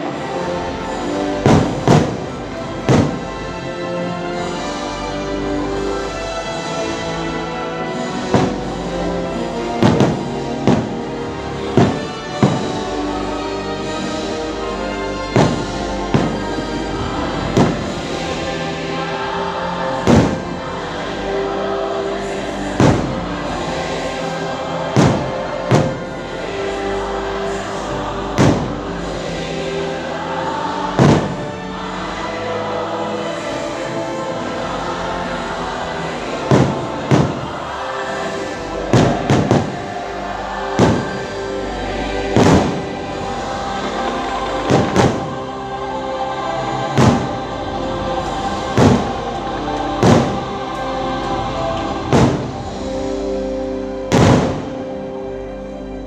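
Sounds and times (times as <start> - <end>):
choir singing: 0.0 - 56.0
music with held notes: 0.0 - 56.0
firework bangs: 0.9 - 3.6, 8.0 - 18.5, 20.0 - 20.8, 22.6 - 24.2, 24.8 - 26.9, 27.6 - 29.3, 30.8 - 31.9, 36.3 - 41.6, 42.3 - 45.5, 46.7 - 47.6, 48.2 - 49.4, 50.0 - 50.8, 51.8 - 52.8, 54.1 - 54.9
firework booms: 9.8 - 12.9, 15.4 - 16.7, 20.1 - 20.4, 22.8 - 23.2, 25.0 - 26.1, 28.4 - 28.8, 31.0 - 31.5, 36.5 - 37.6, 38.9 - 39.9, 40.8 - 41.4, 42.4 - 43.0, 44.7 - 45.4, 47.0 - 47.4, 48.6 - 49.2, 50.0 - 50.4, 52.0 - 52.6, 54.1 - 54.8.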